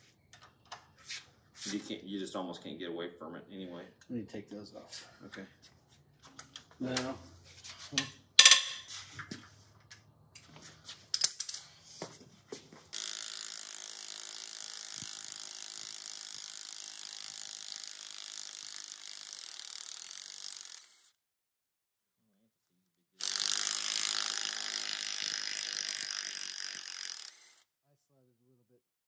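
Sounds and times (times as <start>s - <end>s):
metal tools clinking: 11.2s - 11.9s.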